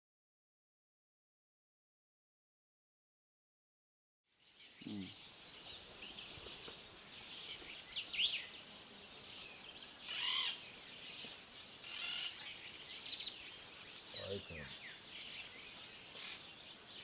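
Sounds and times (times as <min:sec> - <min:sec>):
wild birds calling: 0:04.6 - 0:17.0.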